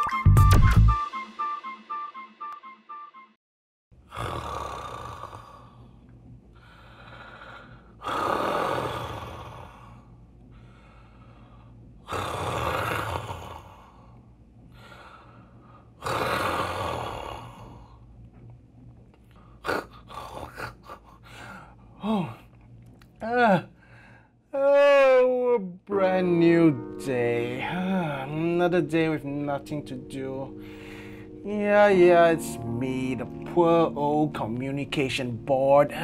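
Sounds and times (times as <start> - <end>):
person breathing heavily: 6.6 - 11.9, 13.7 - 16.0, 19.3 - 22.5, 23.7 - 24.4, 30.6 - 31.4.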